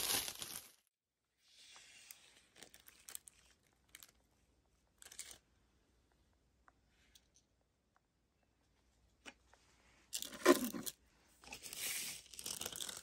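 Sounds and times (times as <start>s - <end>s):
plastic film crinkling: 0.0s - 0.8s.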